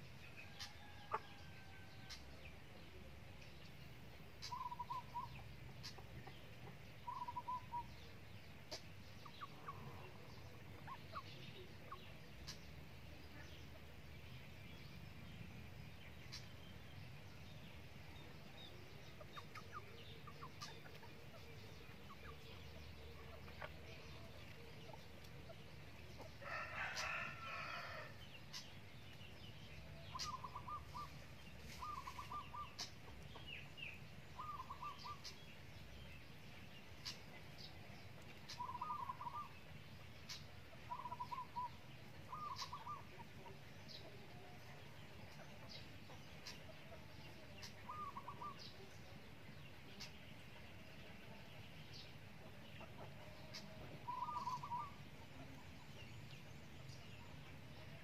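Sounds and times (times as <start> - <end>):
chickens clucking: 0.0 - 14.1, 15.5 - 16.8, 17.5 - 58.0
low steady background noise: 0.0 - 58.0
rooster crowing: 26.4 - 28.2.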